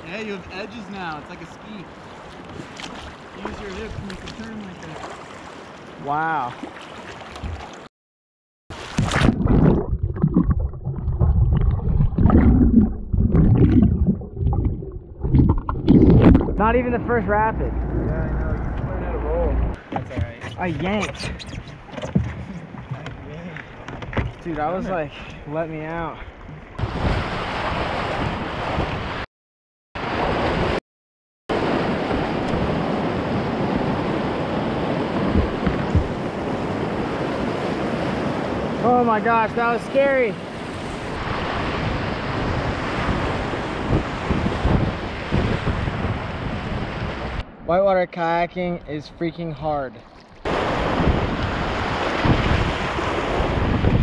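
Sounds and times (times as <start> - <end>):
whitewater rushing and splashing: 0.0 - 7.9, 50.4 - 53.8
splash into water: 2.3 - 5.8, 6.4 - 7.9, 8.7 - 16.6
underwater churning and bubbling: 8.7 - 16.8.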